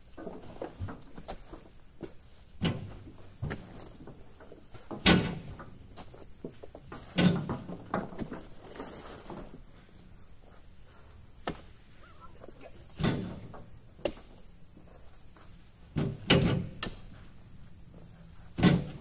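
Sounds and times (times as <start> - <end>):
heavy fruit bunches thudding down: 12.8 - 14.3, 18.5 - 19.0.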